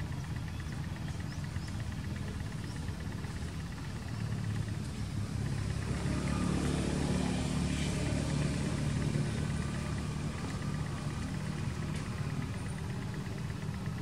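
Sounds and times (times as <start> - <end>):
vehicle engine passing by: 4.4 - 14.0.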